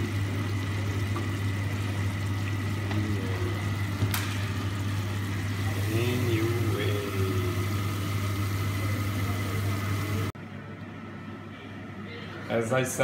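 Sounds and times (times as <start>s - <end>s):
food sizzling in a frying pan: 0.0s - 10.3s
steady low hum: 0.0s - 13.0s.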